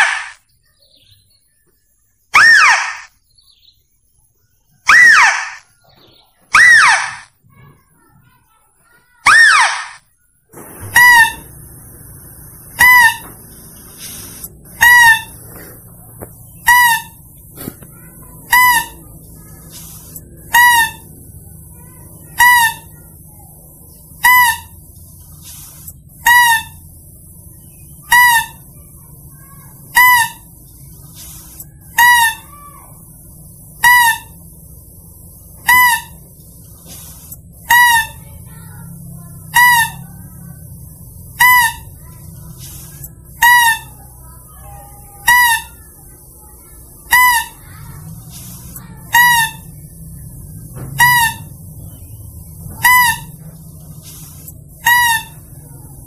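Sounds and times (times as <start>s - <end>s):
faint low hum: 0.0s - 56.0s
high-pitched lure call: 2.4s - 3.1s, 9.3s - 10.0s, 12.7s - 15.6s, 16.4s - 24.9s, 25.5s - 33.0s, 35.5s - 36.3s, 39.4s - 40.2s, 41.3s - 42.2s, 42.8s - 47.7s, 49.0s - 50.1s, 50.9s - 51.6s, 52.7s - 53.4s, 54.8s - 55.5s.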